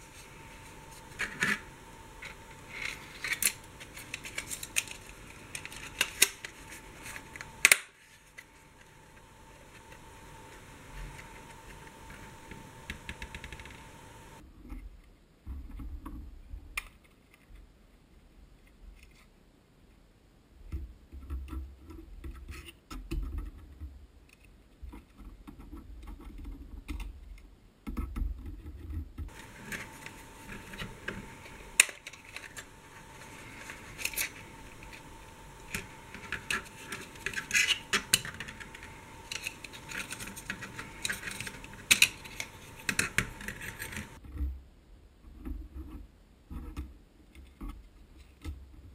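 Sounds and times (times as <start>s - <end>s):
faint steady hum: 0.0s - 27.9s, 29.2s - 48.9s
plastic sporks clicking and scraping: 0.9s - 14.0s, 29.3s - 44.2s.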